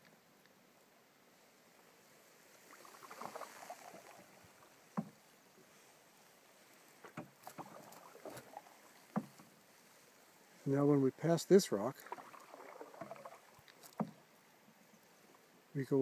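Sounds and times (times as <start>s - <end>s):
water swishing: 1.9s - 15.7s
paddle knocking on hull: 4.9s - 5.2s, 7.0s - 9.6s, 12.0s - 14.3s.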